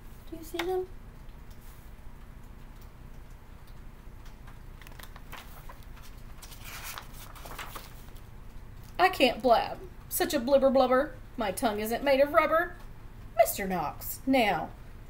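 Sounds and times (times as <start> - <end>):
paper rustling pages turned: 4.5 - 8.3.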